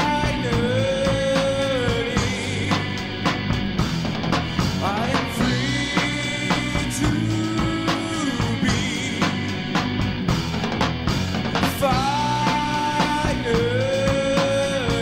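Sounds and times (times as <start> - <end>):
rock music: 0.0 - 15.0.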